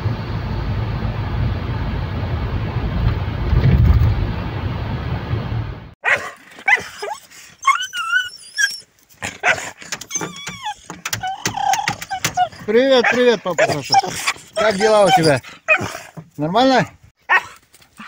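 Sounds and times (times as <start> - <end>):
car road and engine noise: 0.0 - 6.0, 9.0 - 17.1
dog whining and yelping: 6.0 - 16.2.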